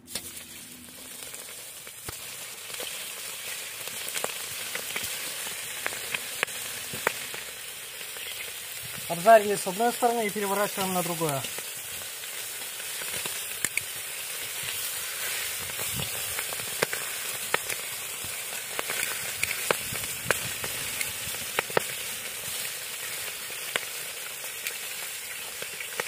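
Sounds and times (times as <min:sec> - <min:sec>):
chicken sizzling in butter: 0:00.0 - 0:26.0
sharp pops and spits of frying: 0:00.0 - 0:26.0.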